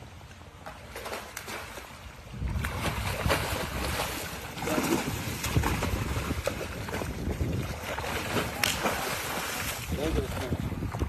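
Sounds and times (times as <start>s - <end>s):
fish splashing in water: 0.6s - 10.4s
wind buffeting microphone: 2.2s - 11.0s.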